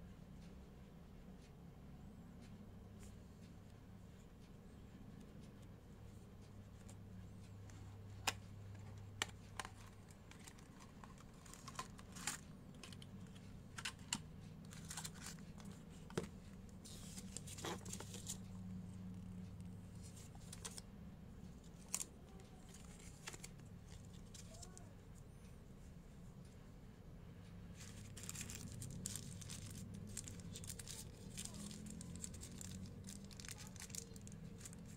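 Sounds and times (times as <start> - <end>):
low steady hum: 0.0 - 34.9
paper rustling: 8.8 - 18.4, 20.0 - 20.8, 27.8 - 34.9.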